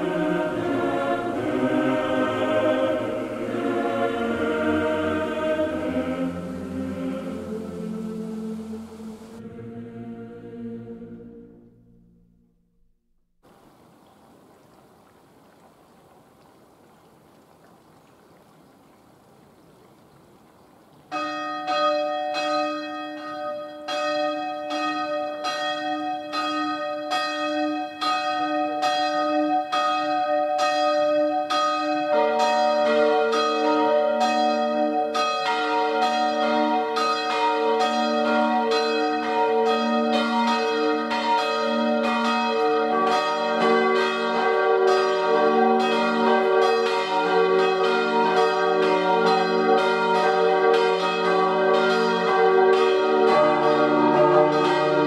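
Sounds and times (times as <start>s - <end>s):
church bells ringing: 0.0s - 9.5s, 21.1s - 55.0s.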